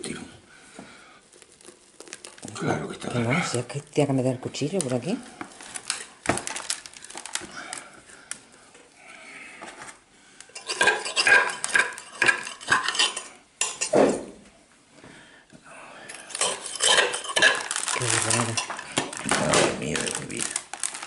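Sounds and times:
metal knife scraping pot: 0:10.5 - 0:14.0, 0:16.2 - 0:19.2.

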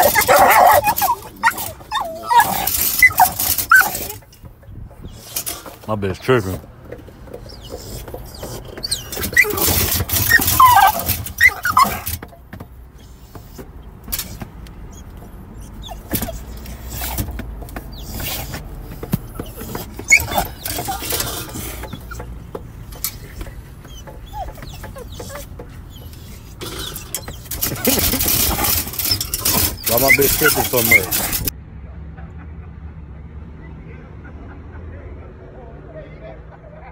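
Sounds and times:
dog whining: 0:00.0 - 0:04.4, 0:07.2 - 0:12.3, 0:12.9 - 0:31.5.

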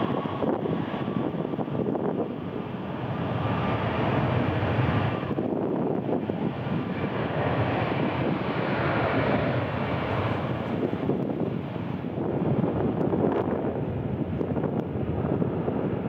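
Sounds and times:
jet engines roaring: 0:00.0 - 0:16.0
wind buffeting microphone: 0:00.0 - 0:16.0.

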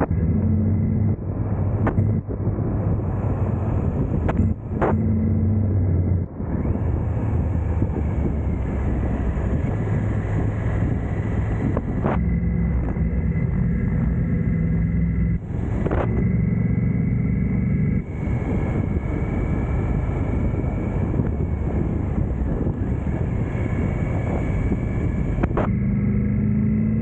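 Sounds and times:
wind buffeting microphone: 0:00.0 - 0:26.0
motorcycle engine running: 0:00.0 - 0:27.0.

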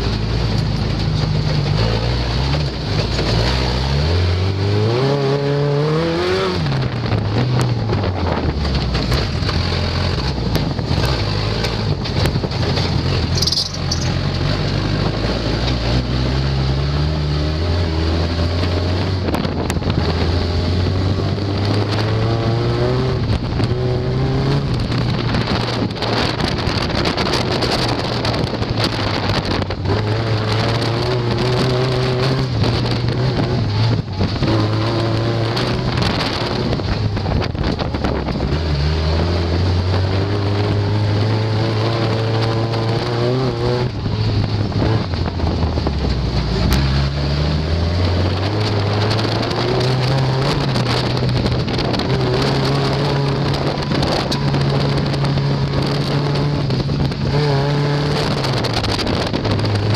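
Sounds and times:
race vehicle engine revving: 0:00.0 - 0:59.9
vehicle knocking and clattering: 0:07.0 - 0:15.8.

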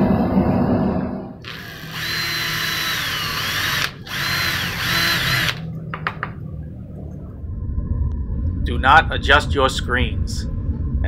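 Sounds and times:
electric drill boring through steel: 0:01.4 - 0:05.6.

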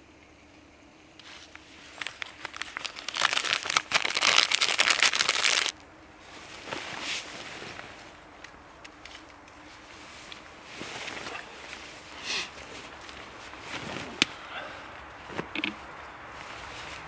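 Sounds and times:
plastic bag crinkling: 0:01.3 - 0:05.8.

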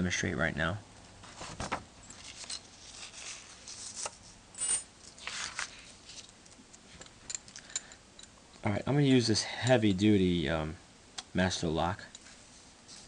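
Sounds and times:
paper rustling: 0:01.2 - 0:04.4, 0:05.0 - 0:06.3.

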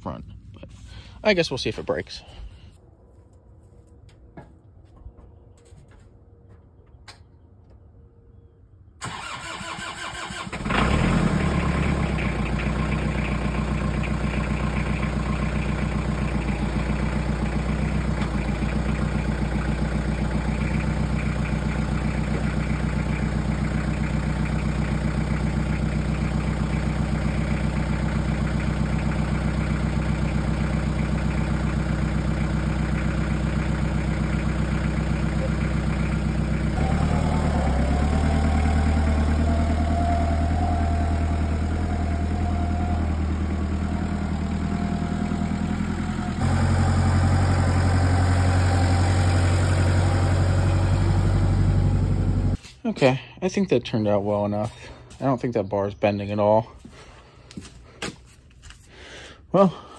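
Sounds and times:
diesel engine cranking: 0:09.0 - 0:52.6
tractor engine idling: 0:09.0 - 0:53.2.

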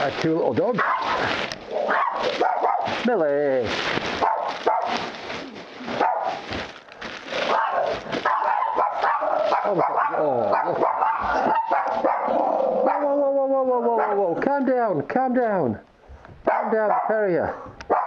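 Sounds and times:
small dogs barking and yipping: 0:00.7 - 0:03.1, 0:04.1 - 0:05.2, 0:05.9 - 0:06.5, 0:07.4 - 0:13.2, 0:13.9 - 0:14.3, 0:16.5 - 0:18.0.

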